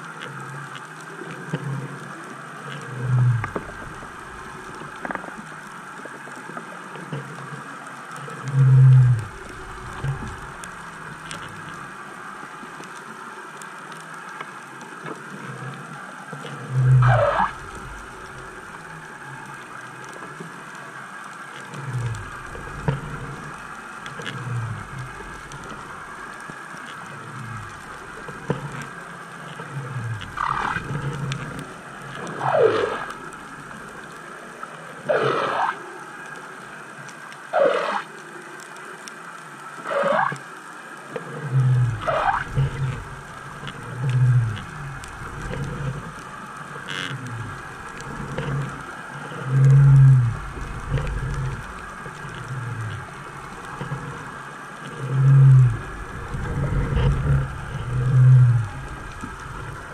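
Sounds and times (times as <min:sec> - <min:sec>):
underwater hiss: 0:21.7 - 0:36.8, 0:37.5 - 0:38.4.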